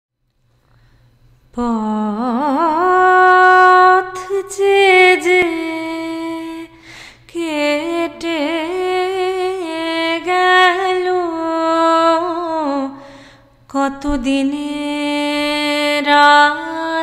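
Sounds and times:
singer breathing in: 0:00.6 - 0:01.2, 0:06.8 - 0:07.3, 0:13.0 - 0:13.6
woman singing: 0:01.6 - 0:13.1, 0:13.7 - 0:17.0.

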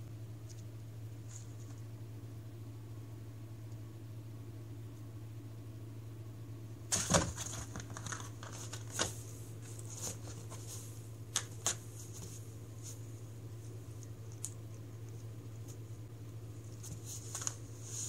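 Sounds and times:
steady low hum: 0:00.0 - 0:18.0
cat scratching cardboard: 0:16.6 - 0:18.0.

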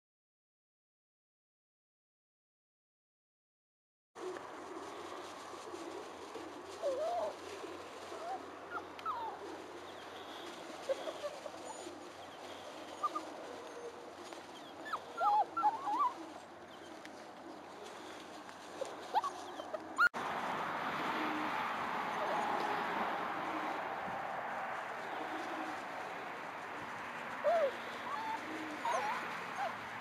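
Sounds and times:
puppies whining and yipping: 0:06.2 - 0:17.2, 0:17.8 - 0:20.2, 0:27.4 - 0:30.0.

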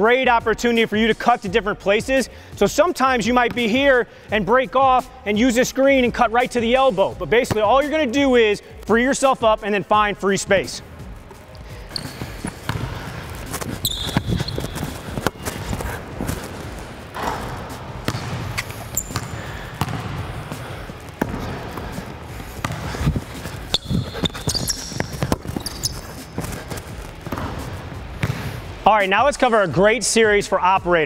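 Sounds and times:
sneaker squeaks: 0:10.7 - 0:28.4
basketball bouncing on hardwood floor: 0:11.9 - 0:28.5.

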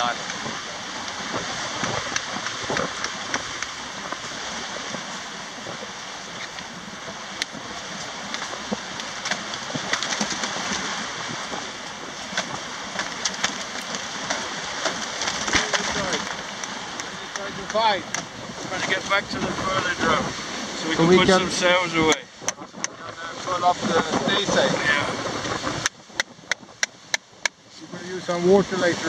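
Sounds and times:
water rushing along hull: 0:00.0 - 0:29.0
sharp clicks and knocks: 0:12.3 - 0:19.0, 0:22.4 - 0:23.2, 0:25.8 - 0:27.6.

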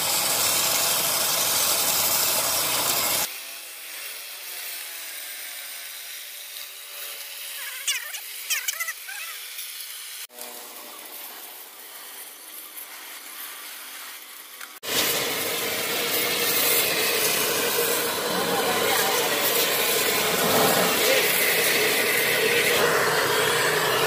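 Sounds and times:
sandblaster jet hissing: 0:00.0 - 0:24.0
high squeaks: 0:07.5 - 0:09.6.

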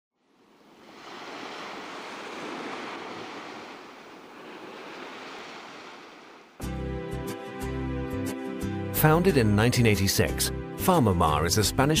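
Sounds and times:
ocean waves washing: 0:00.2 - 0:06.6.

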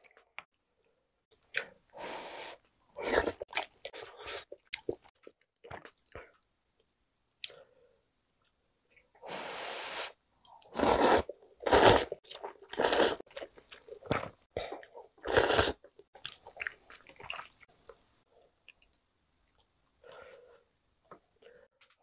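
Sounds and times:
person slurping noodles: 0:09.3 - 0:13.2, 0:15.2 - 0:15.8.

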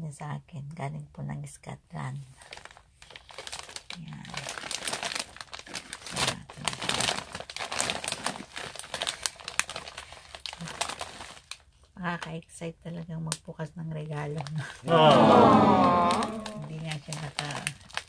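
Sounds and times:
plastic packaging crinkling: 0:02.4 - 0:11.9, 0:16.1 - 0:18.0.

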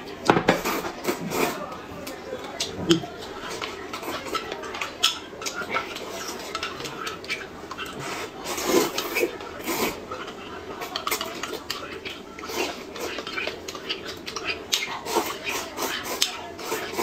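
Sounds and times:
slurping noodles: 0:00.6 - 0:01.7, 0:05.5 - 0:17.0.

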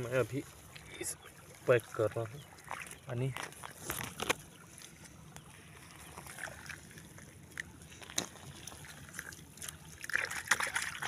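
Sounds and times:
water trickling: 0:00.0 - 0:11.0
small clicks and rustles: 0:02.7 - 0:10.6.

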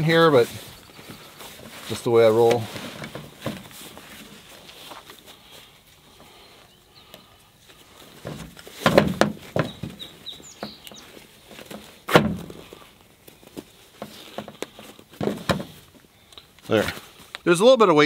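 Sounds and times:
fabric and strap rustling: 0:00.0 - 0:06.7.

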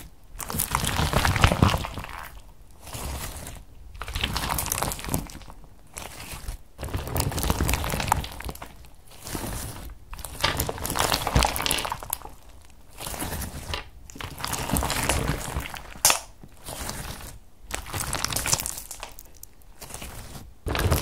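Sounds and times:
slime squishing and crackling: 0:00.0 - 0:21.0
slime popping: 0:14.1 - 0:17.1.

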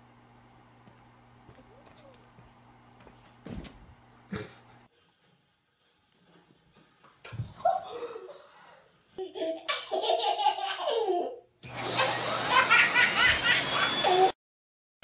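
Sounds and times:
vacuum cleaner running: 0:11.6 - 0:14.4.

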